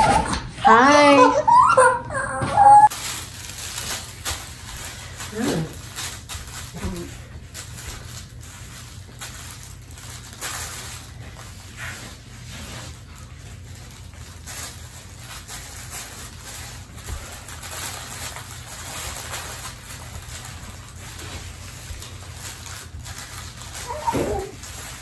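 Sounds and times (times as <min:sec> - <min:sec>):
infants fussing and cooing: 0:23.9 - 0:24.6.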